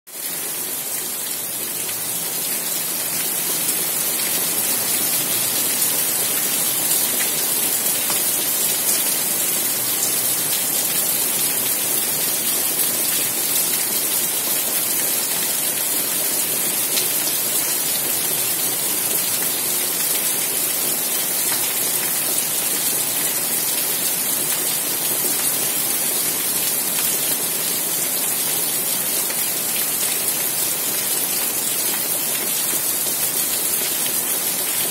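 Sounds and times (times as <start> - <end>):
rain falling on leaves: 0.1 - 34.9.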